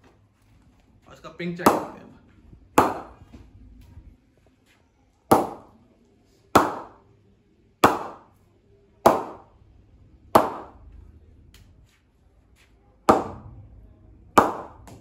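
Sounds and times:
cricket ball knocking on bat: 1.6s - 2.0s, 2.8s - 3.4s, 5.3s - 5.7s, 6.6s - 7.0s, 7.8s - 8.3s, 9.1s - 9.5s, 10.4s - 10.8s, 13.1s - 13.5s, 14.4s - 15.0s.

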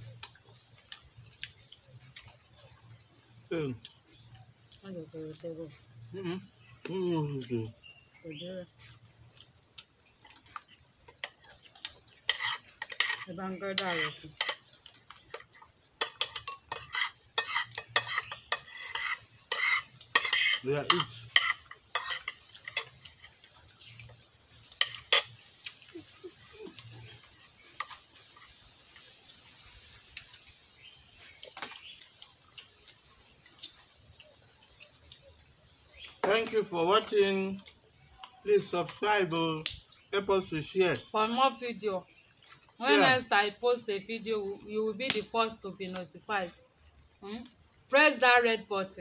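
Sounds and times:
metal spoons scraping a plate: 11.2s - 14.7s, 15.3s - 23.2s, 24.8s - 25.4s.

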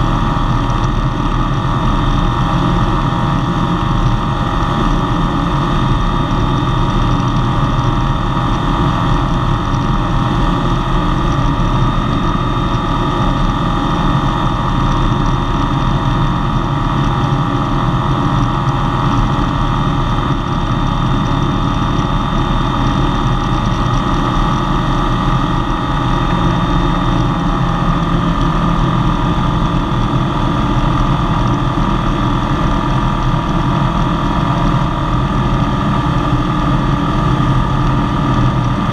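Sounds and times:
light aircraft engine drone: 0.0s - 38.9s.

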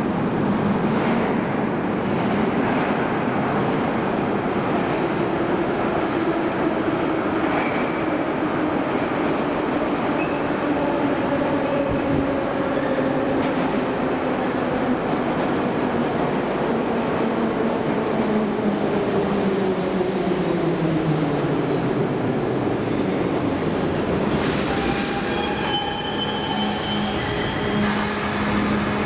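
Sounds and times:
train wheels rumbling: 22.2s - 29.0s.

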